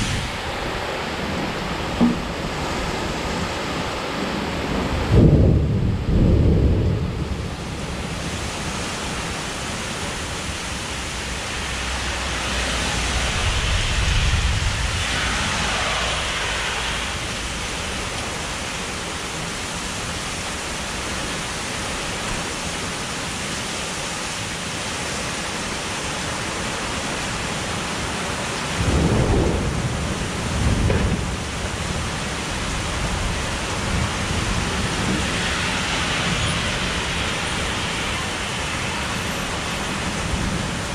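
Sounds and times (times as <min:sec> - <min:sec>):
thunder rumbling: 0:00.0 - 0:08.4, 0:10.5 - 0:18.8, 0:28.8 - 0:38.9
heavy rain pouring: 0:00.0 - 0:40.9.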